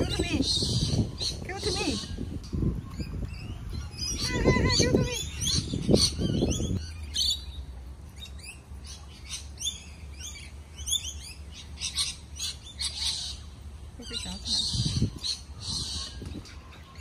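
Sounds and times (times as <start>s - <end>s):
small birds chirping: 0.0s - 17.0s
low steady rumble: 5.0s - 17.0s.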